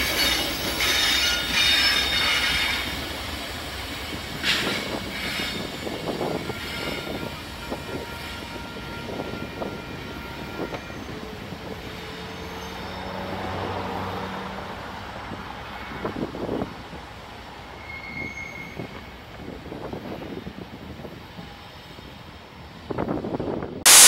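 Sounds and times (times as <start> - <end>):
wheel squeal: 0.0 - 2.9, 17.8 - 19.1
diesel locomotive engine hum: 0.0 - 17.9, 18.8 - 24.0.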